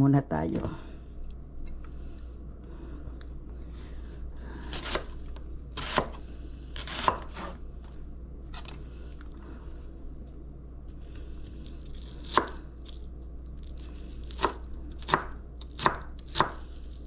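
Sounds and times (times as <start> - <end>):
low steady hum: 0.0 - 17.0
knife chopping on cutting board: 5.8 - 6.2, 14.4 - 16.6.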